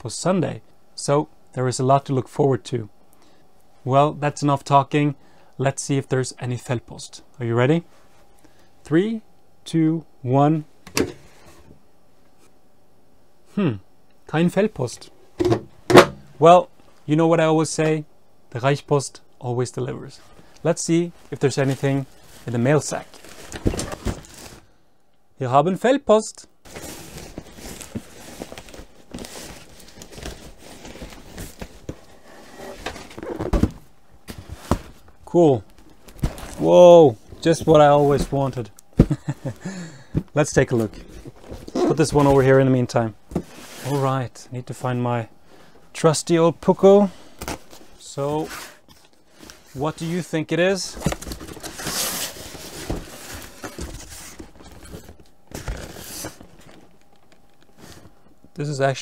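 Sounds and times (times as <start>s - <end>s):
boxes knocking and scraping: 15.4s - 16.3s
cardboard scraping and rustling: 21.6s - 24.6s, 26.7s - 35.0s, 50.9s - 56.9s.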